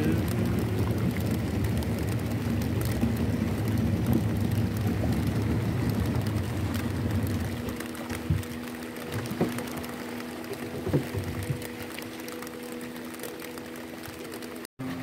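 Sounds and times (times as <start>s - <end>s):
light rain ticking: 0.0s - 14.7s
outboard motor droning: 0.0s - 15.0s.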